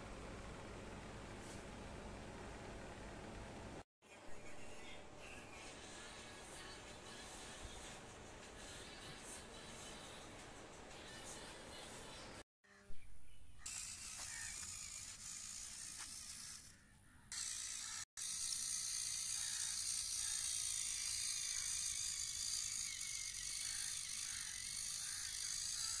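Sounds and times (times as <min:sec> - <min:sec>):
electric gear motors whining: 0:13.7 - 0:26.0.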